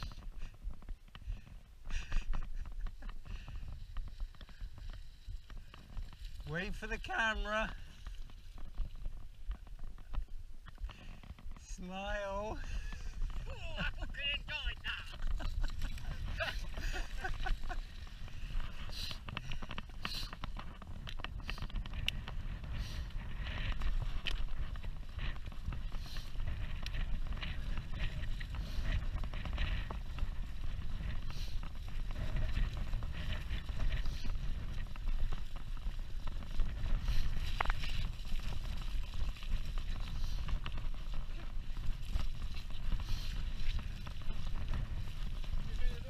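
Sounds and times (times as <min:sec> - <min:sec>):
bike rattles and clicks: 0:00.0 - 0:14.2, 0:14.8 - 0:46.0
wind and tyre rumble: 0:00.0 - 0:46.0.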